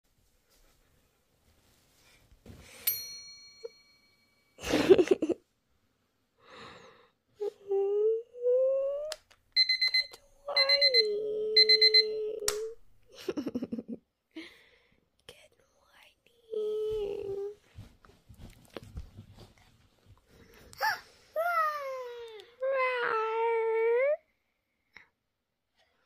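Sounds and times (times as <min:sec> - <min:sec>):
electronic alarm beeping: 0:09.6 - 0:12.3
low hum from a voice: 0:10.4 - 0:12.5.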